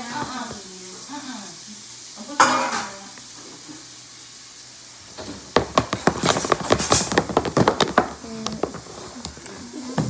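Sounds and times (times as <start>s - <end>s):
utensil knocking against plastic tub: 5.2s - 9.4s.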